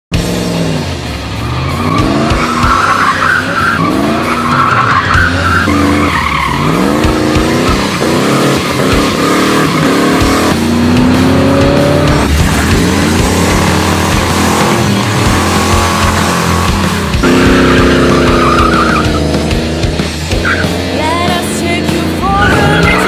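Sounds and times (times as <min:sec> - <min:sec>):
car engine revving: 0:00.2 - 0:23.0
tyres squealing: 0:01.6 - 0:10.6, 0:12.4 - 0:19.3, 0:20.3 - 0:20.8, 0:22.2 - 0:23.0.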